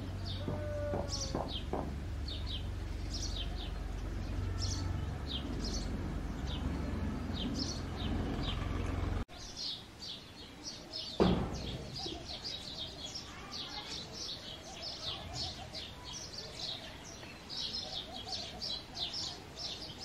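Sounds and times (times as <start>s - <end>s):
sparrow chirping: 0.0s - 20.0s
low rumble: 1.9s - 9.3s.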